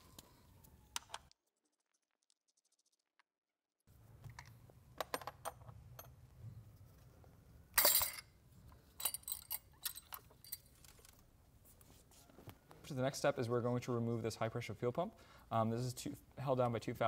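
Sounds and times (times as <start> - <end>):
metal tools clinking: 7.8 - 11.1.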